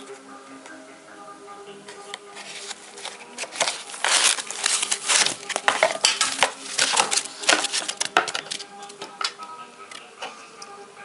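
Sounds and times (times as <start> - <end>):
plastic wrap crinkling: 2.4 - 8.7.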